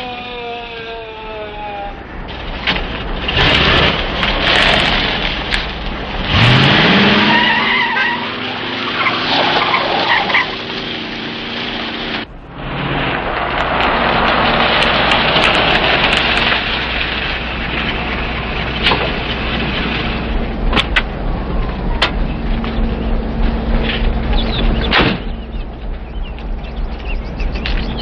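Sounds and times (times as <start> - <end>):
tyres crunching on gravel: 0.0 - 28.0.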